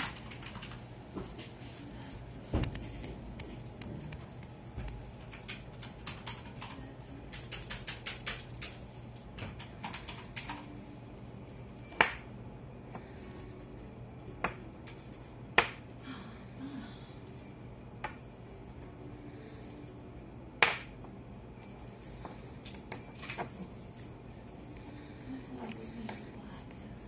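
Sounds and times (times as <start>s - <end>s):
faint low hum: 0.0s - 27.0s.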